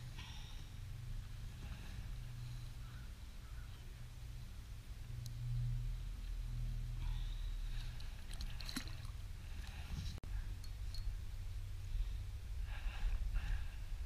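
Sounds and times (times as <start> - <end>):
steady low rumble: 0.0 - 14.0
light wet splashing: 7.6 - 9.8.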